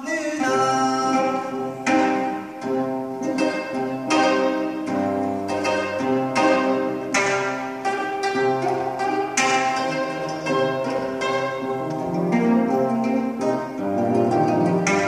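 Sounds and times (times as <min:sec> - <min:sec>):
plucked zither strings: 0:00.0 - 0:15.0.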